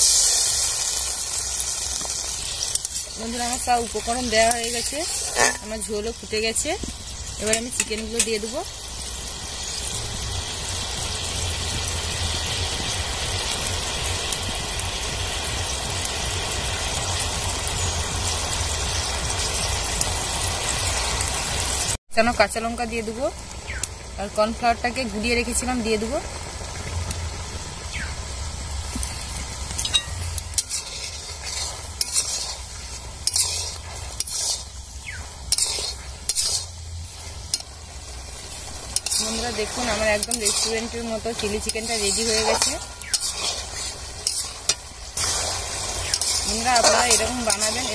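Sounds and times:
metal spatula scraping pan: 2.9 - 6.1, 29.8 - 34.8, 35.5 - 36.8, 38.5 - 47.9
sauce bubbling in a wok: 8.5 - 22.0, 22.8 - 47.9.

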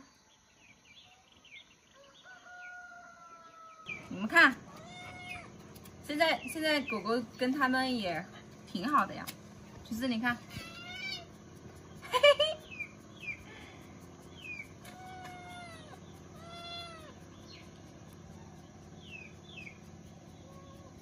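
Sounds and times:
kitten meowing: 4.7 - 5.6, 10.5 - 11.3, 14.8 - 17.2
high bird chirps: 10.6 - 13.6, 14.2 - 20.9.

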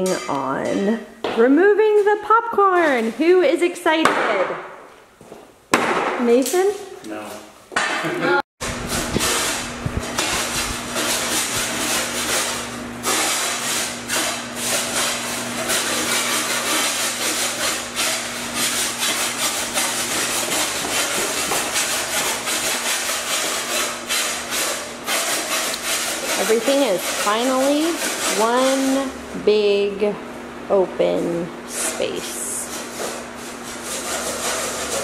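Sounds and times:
low electrical hum: 0.0 - 35.0
scratchy scraping and rubbing: 8.7 - 29.2, 31.2 - 35.0.

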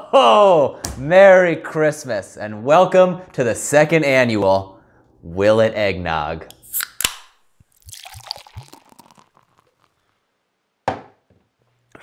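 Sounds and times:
beer pouring into a glass: 7.7 - 10.0.

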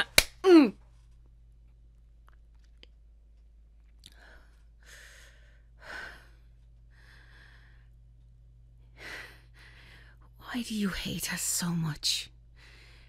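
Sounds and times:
faint low hum: 0.0 - 13.0
woman breathing heavily: 4.1 - 8.1, 8.8 - 10.4, 12.5 - 13.0.

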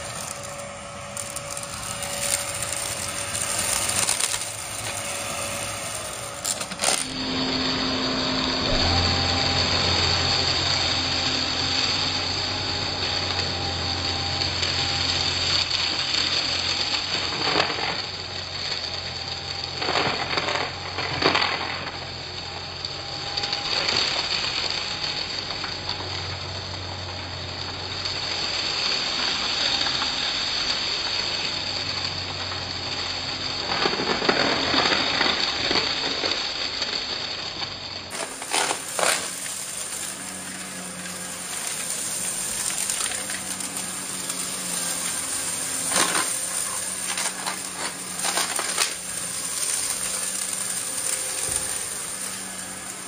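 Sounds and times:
debris rattling through vacuum: 0.0 - 13.6, 38.1 - 53.0
vacuum cleaner running: 0.0 - 36.5, 37.9 - 53.0.

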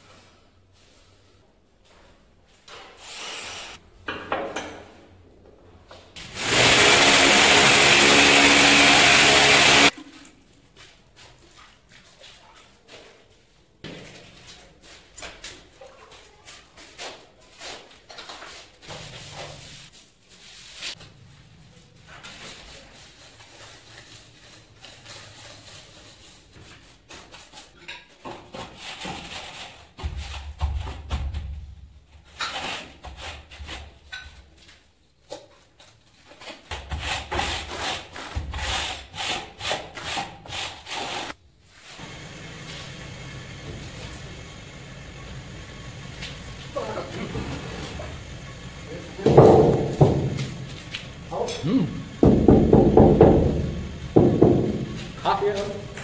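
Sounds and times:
angle grinder whining: 6.4 - 9.9.

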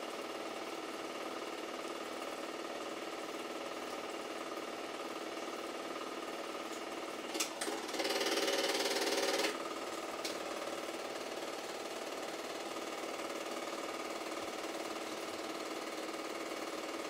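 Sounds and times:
film projector clattering: 0.1 - 17.0
sharp projector clicks: 6.7 - 10.6.

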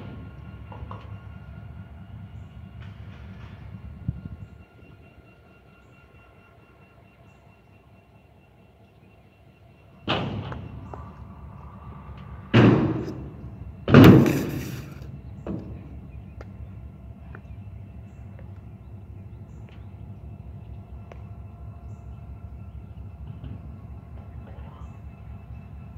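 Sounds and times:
scooter slamming on ramp: 13.9 - 15.0.

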